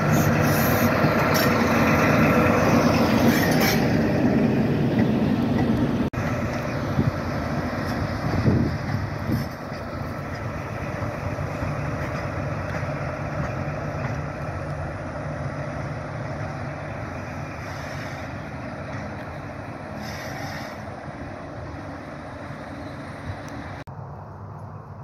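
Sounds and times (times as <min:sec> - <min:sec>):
diesel engine drone: 0:00.0 - 0:25.0
short hisses: 0:17.6 - 0:18.4, 0:20.0 - 0:20.9.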